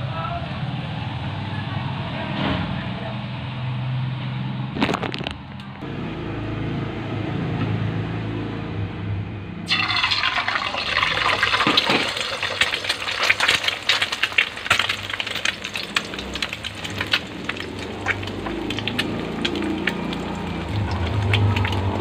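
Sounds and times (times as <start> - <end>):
egg sizzling in hot oil: 9.7 - 22.0.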